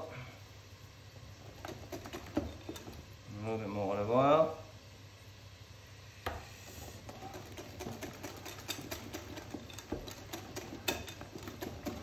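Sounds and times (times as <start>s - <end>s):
whisk clicking against bowl: 1.5s - 3.1s, 6.9s - 12.0s.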